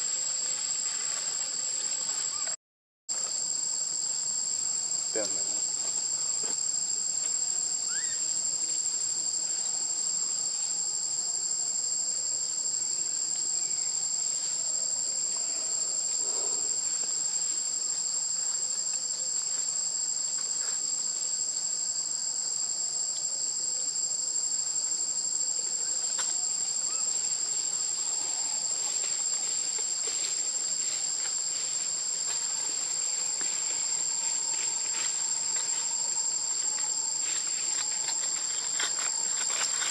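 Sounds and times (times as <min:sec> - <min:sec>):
high-pitched insect chorus: 0:00.0 - 0:39.9.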